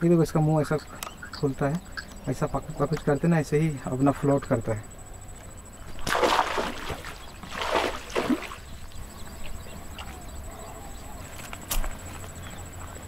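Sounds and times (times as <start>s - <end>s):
pond water splashing: 5.9s - 8.9s.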